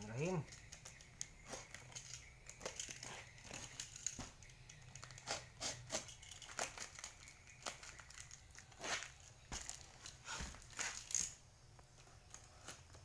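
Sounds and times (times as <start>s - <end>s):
knife slicing tape and cardboard: 5.2s - 6.8s.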